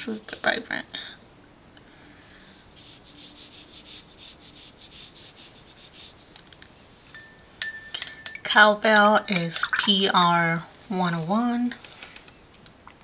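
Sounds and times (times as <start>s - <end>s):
paintbrush swishing on paper: 2.7s - 6.4s
ringing clink: 7.1s - 8.5s.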